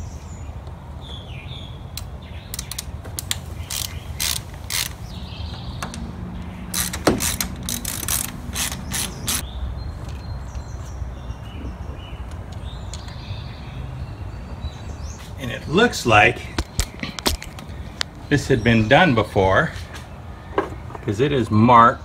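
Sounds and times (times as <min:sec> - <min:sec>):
ratchet wrench clicking: 0:02.5 - 0:05.0, 0:06.7 - 0:09.4.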